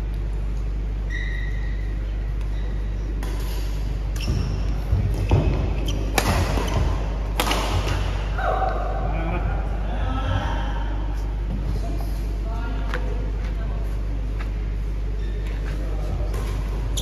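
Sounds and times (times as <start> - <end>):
steady low hum: 0.0 - 17.0
shoe squeak on court: 4.1 - 6.9
racket hitting shuttlecock: 5.1 - 8.3.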